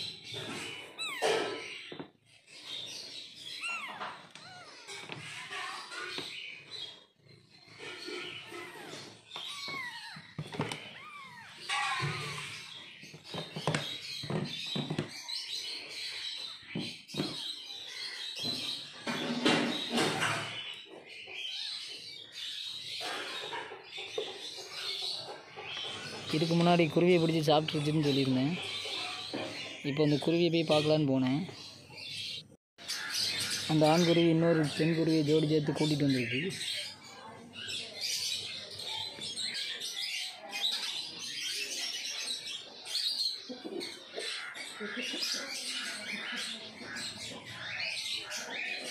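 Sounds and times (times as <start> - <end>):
kittens squeaking and mewing: 0.0 - 15.2
sparrows chirping: 0.0 - 48.9.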